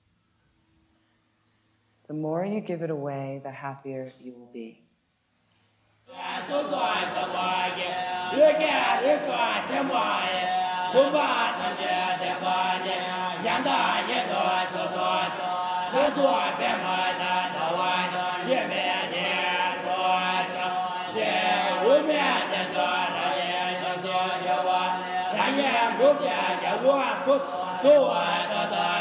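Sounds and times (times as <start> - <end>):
low drone of voices: 6.1 - 29.0
monks chanting: 6.1 - 29.0.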